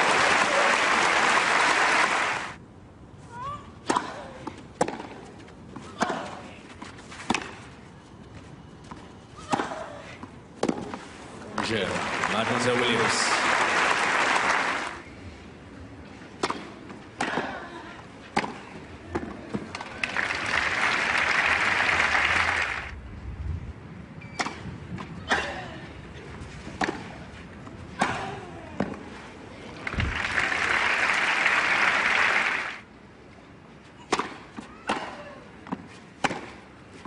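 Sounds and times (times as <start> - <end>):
crowd applause: 0.0 - 2.6, 11.7 - 15.0, 20.0 - 22.9, 29.8 - 32.8
tennis balls struck by rackets: 3.8 - 5.3, 7.2 - 7.6, 9.5 - 11.7, 16.3 - 17.6, 18.3 - 19.9, 26.8 - 27.2, 27.9 - 29.0, 34.0 - 36.7.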